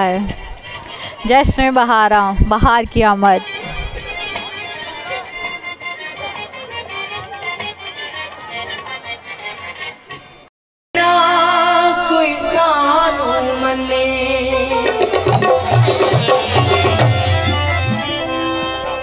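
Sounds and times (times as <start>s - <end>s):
person singing ornamented notes: 11.0s - 19.0s
tabla strokes: 14.6s - 18.1s.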